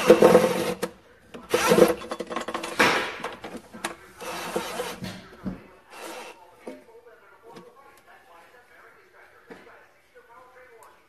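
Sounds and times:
cordless drill grinding metal: 0:00.0 - 0:00.9, 0:01.5 - 0:02.2, 0:04.2 - 0:05.0, 0:05.9 - 0:06.4.

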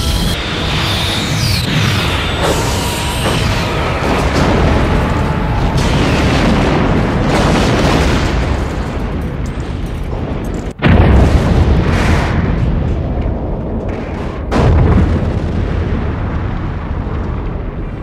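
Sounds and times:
music: 0:00.0 - 0:01.2
loud rumbling explosion: 0:01.6 - 0:18.0.

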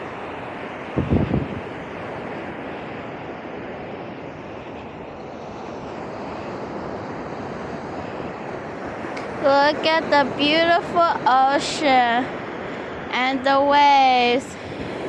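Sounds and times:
surf washing on beach: 0:00.0 - 0:15.0
wind on microphone: 0:00.0 - 0:15.0.

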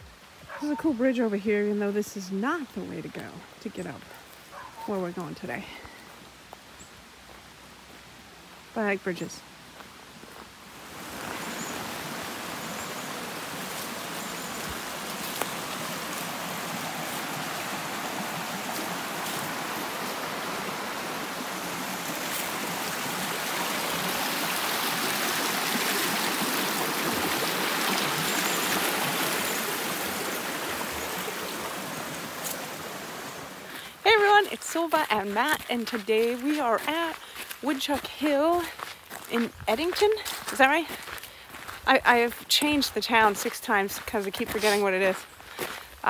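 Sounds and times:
stream water rushing: 0:07.1 - 0:41.8.

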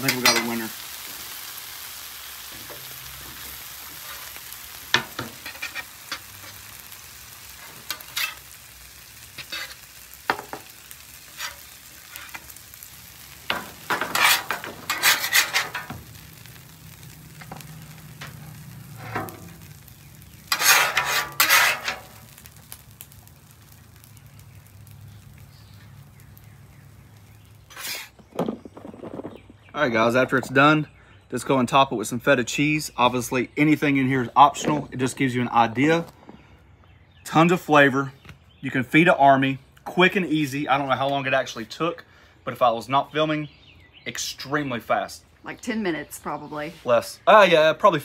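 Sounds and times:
metal spatula scraping a griddle: 0:00.0 - 0:00.8, 0:02.7 - 0:22.4, 0:27.6 - 0:28.3
vegetables sizzling on a griddle: 0:00.0 - 0:29.9.

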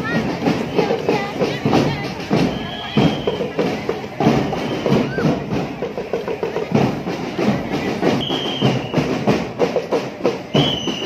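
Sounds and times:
marching drum band: 0:00.0 - 0:11.0
whistle blasts: 0:02.3 - 0:03.6, 0:04.3 - 0:05.4, 0:08.2 - 0:09.1, 0:10.5 - 0:11.0.

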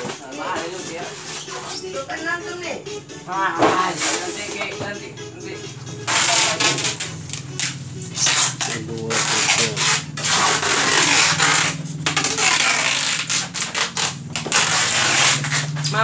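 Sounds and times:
plastic wrap and styrofoam rustling: 0:06.1 - 0:16.0.

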